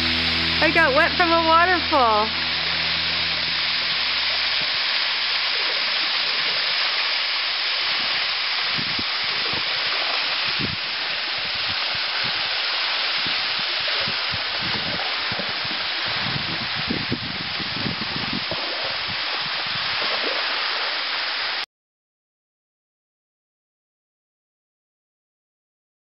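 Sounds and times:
dull low thumps: 0.0 - 5.5
waterfall rushing: 0.0 - 21.6.

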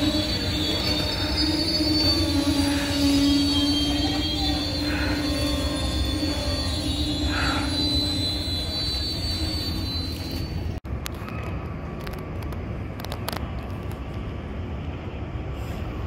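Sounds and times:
high train squeal: 0.0 - 11.7
street traffic rumble: 0.0 - 16.0
train rolling past: 0.0 - 16.0.

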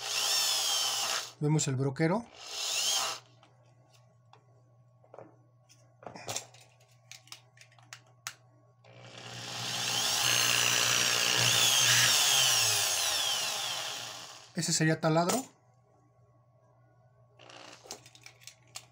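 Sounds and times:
electric drill motor whining: 0.0 - 1.4, 2.3 - 3.3, 8.9 - 14.5.

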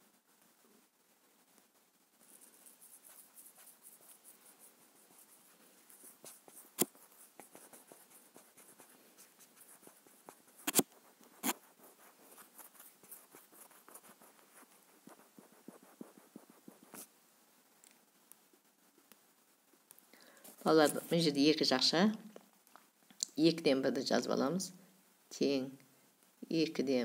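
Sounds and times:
stylus scratching on touchscreen: 2.2 - 17.1
stylus clicks: 10.6 - 11.6.

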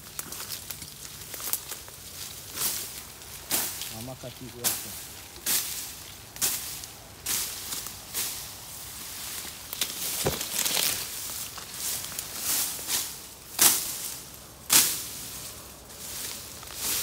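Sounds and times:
crunching and rustling of leaves: 0.0 - 17.0
sharp cracks: 9.7 - 11.2.

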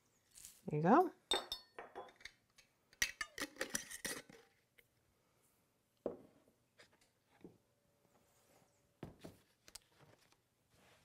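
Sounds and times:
metal lid screwing onto glass jar: 3.0 - 4.5.

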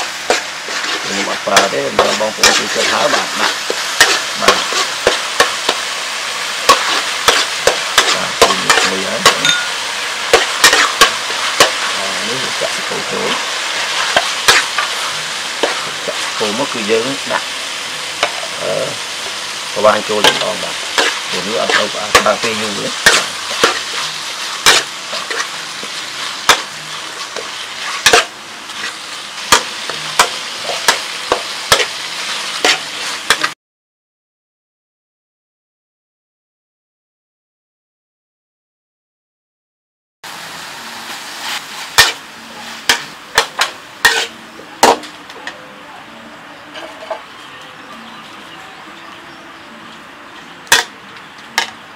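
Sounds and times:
metal spatula scraping wok: 0.0 - 33.5, 40.8 - 45.6, 46.6 - 48.5, 50.3 - 51.9
oil sizzling: 0.0 - 33.6, 40.2 - 51.9
metal spatula clanking on wok: 6.7 - 11.8, 20.2 - 24.0, 42.9 - 45.6.

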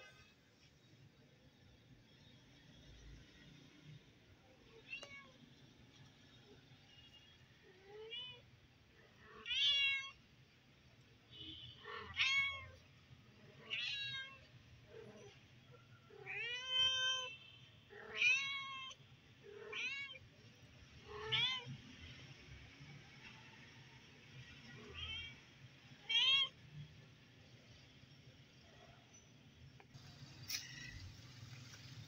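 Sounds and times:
cat meowing: 9.3 - 10.2, 11.8 - 12.8, 13.6 - 15.4, 16.1 - 20.3, 24.7 - 25.4, 26.0 - 26.6.

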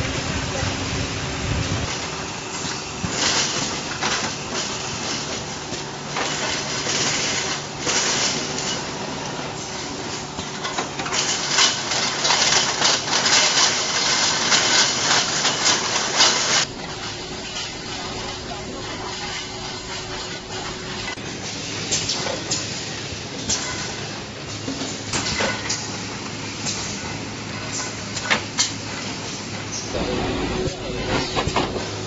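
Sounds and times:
metal parts clattering: 10.4 - 21.2
machine hum: 12.3 - 22.1, 29.6 - 32.0.

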